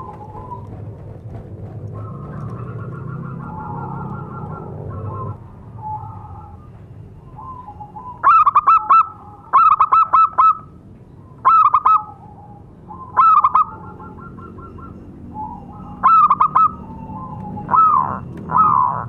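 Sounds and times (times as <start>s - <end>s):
dove cooing: 0.0s - 0.9s, 7.3s - 10.7s, 11.4s - 19.0s.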